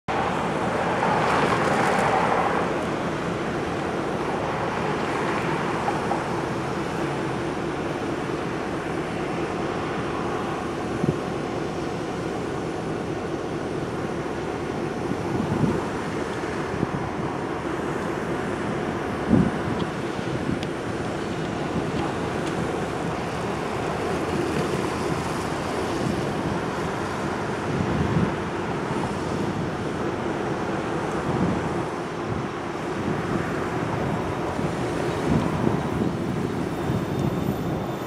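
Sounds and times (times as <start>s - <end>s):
cars driving past: 0.1s - 12.0s
diesel locomotive engine idling: 2.5s - 38.0s.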